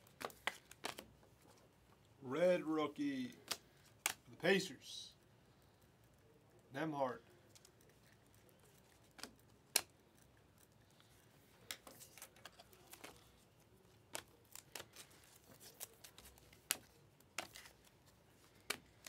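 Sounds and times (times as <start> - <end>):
trading cards flipping: 0.0 - 1.5, 7.5 - 19.0.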